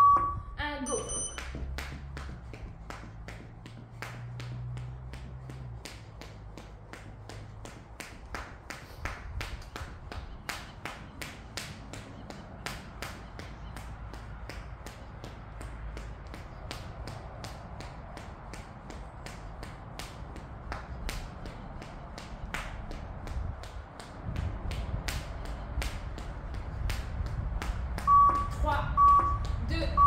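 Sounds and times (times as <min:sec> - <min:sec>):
jump rope slapping the floor: 0:01.3 - 0:29.6.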